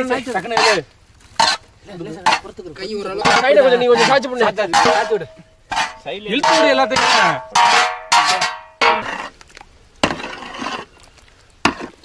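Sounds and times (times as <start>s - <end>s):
metal spatula scraping a metal pot: 0.5s - 0.8s, 1.4s - 2.5s, 3.2s - 9.3s, 10.0s - 10.9s.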